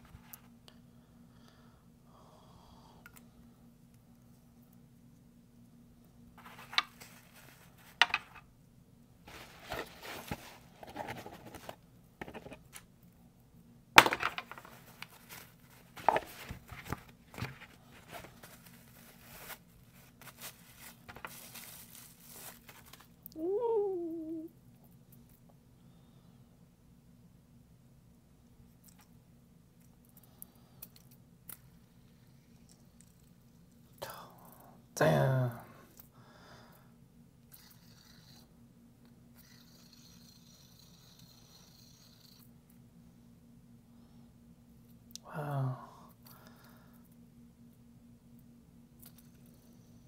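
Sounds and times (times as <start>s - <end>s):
packing paper crinkling: 14.3s - 23.2s.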